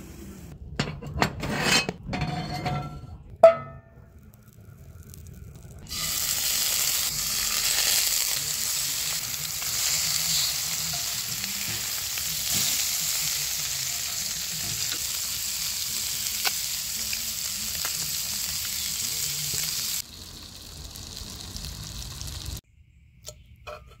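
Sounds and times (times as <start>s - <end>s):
fish frying in a skillet: 5.9s - 22.6s.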